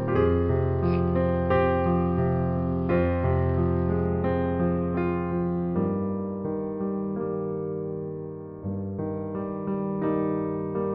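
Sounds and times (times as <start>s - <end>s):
slow sustained keyboard notes: 0.0s - 5.8s.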